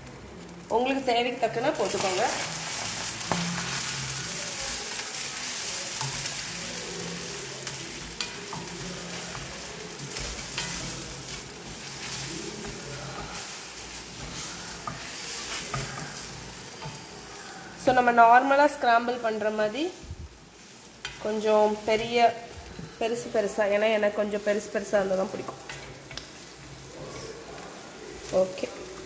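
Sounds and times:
eggs sizzling in a frying pan: 0.0 - 29.0
spatula scraping and tapping pan: 1.8 - 17.4, 20.6 - 21.4, 25.3 - 27.6.

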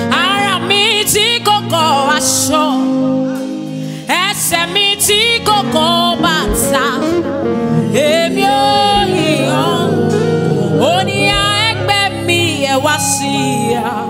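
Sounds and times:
woman singing gospel: 0.0 - 14.0
band playing: 4.4 - 14.0.

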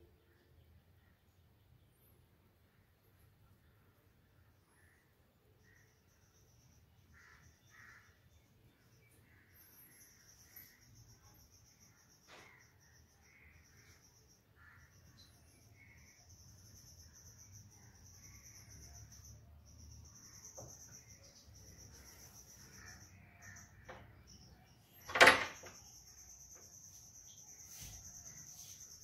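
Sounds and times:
insects chirring: 4.5 - 29.0.

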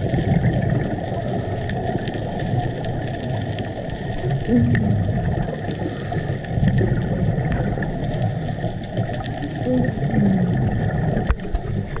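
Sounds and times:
low underwater rumble: 0.0 - 12.0.

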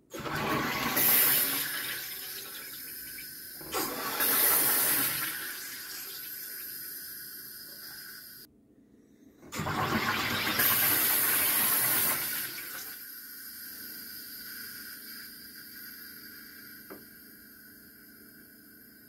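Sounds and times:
gas hissing into water: 0.1 - 8.5, 9.6 - 19.0.

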